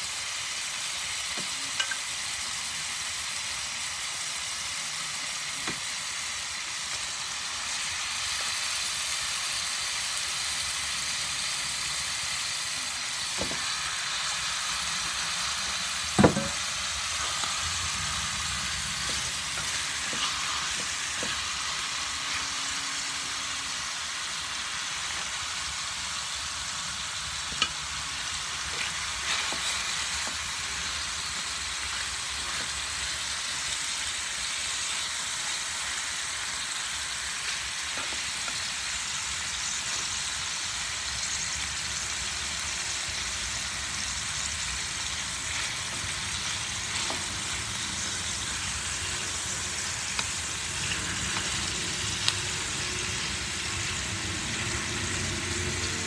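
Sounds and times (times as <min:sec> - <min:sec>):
chicken sizzling in oil: 0:00.0 - 0:56.0
knocks against pan: 0:16.2 - 0:16.6.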